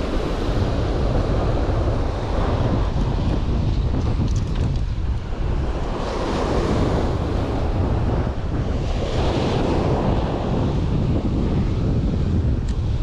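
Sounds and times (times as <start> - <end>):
ocean surf washing onto beach: 0.0 - 13.0
wind rumbling on microphone: 0.0 - 13.0.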